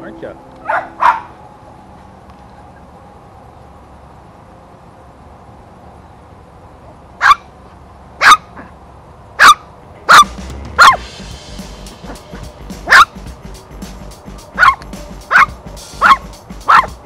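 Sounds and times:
dog barking: 0.6 - 1.4, 7.2 - 7.5, 8.2 - 8.7, 9.4 - 11.0, 12.9 - 13.2, 14.6 - 17.0.

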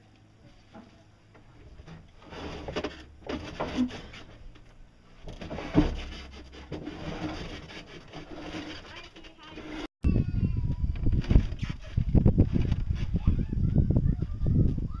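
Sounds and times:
wooden crate scraping: 1.7 - 4.6, 5.2 - 9.9
crate knocks and thump: 5.2 - 7.7.

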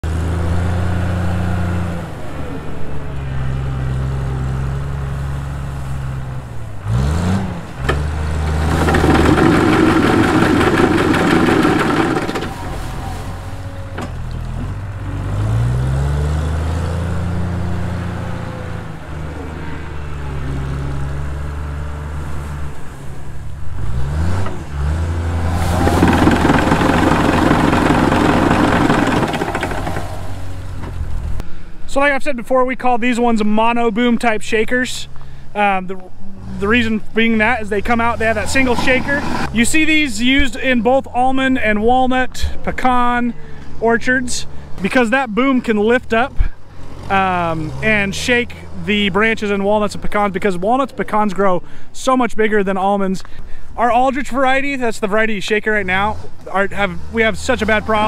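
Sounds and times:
tree shaker engine running: 8.3 - 13.8, 25.3 - 31.3
shaker head shaking tree trunk: 8.4 - 13.7, 25.4 - 30.8.

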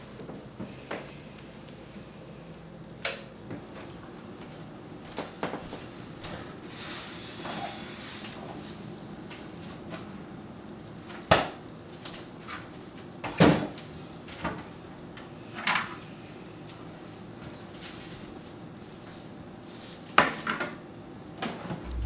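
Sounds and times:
low hum: 21.7 - 22.0.

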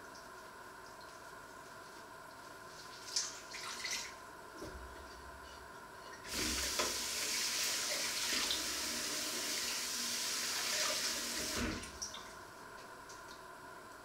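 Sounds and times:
tap water running onto plate: 6.3 - 8.8.

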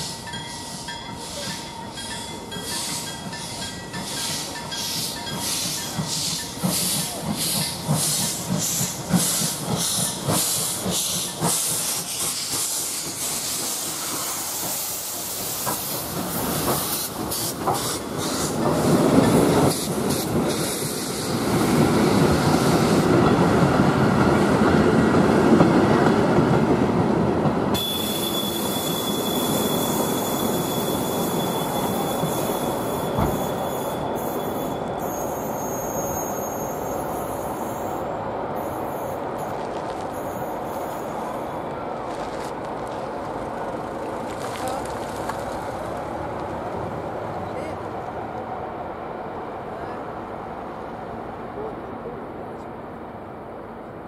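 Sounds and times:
steam train rhythmic beats: 0.0 - 18.9
rumble of train coaches: 0.0 - 54.0
high-pitched squeal: 27.8 - 39.2.

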